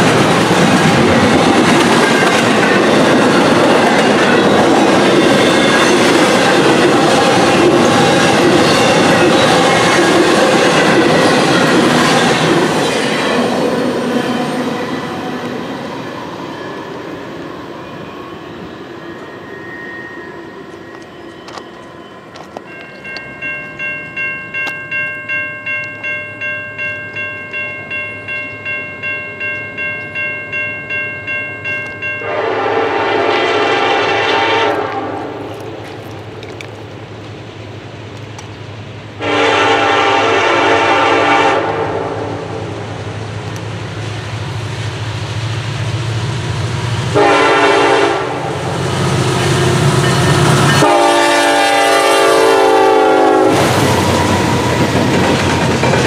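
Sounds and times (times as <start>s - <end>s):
bell ringing: 19.0s - 32.4s
train air horn blowing: 32.2s - 35.4s, 39.2s - 42.6s, 47.1s - 48.6s, 50.5s - 54.0s.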